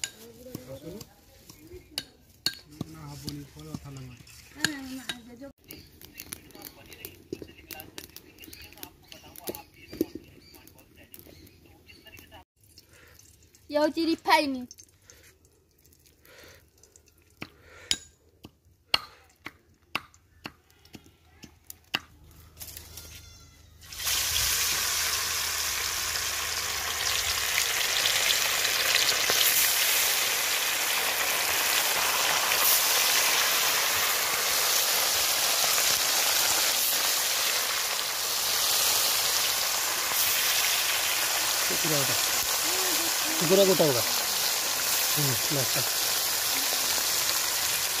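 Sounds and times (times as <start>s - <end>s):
fish sizzling in hot oil: 23.8s - 48.0s.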